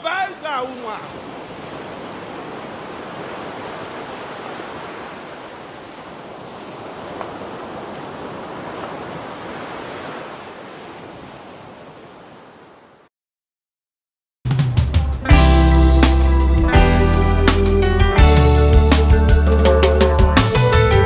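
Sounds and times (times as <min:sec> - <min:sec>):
faint clicks: 0:07.2 - 0:07.4.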